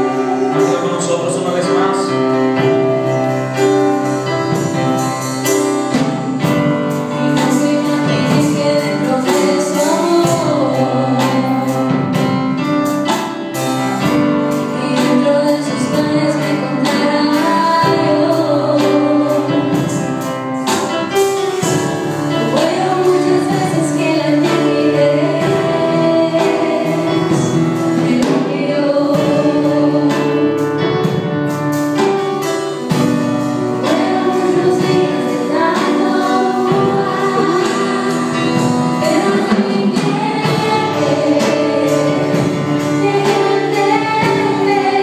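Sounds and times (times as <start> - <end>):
electronic keyboard accompaniment: 0.0 - 45.0
woman singing into a microphone: 6.4 - 12.4, 14.6 - 20.7, 21.6 - 30.8, 33.8 - 45.0.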